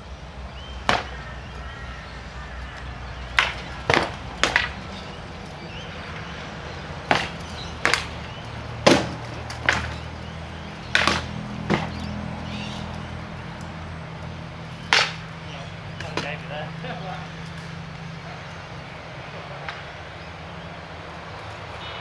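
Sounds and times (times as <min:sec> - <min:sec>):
swords striking shields: 0:00.8 - 0:01.1, 0:03.4 - 0:04.8, 0:07.0 - 0:08.2, 0:08.8 - 0:10.0, 0:10.9 - 0:11.9, 0:14.9 - 0:15.3.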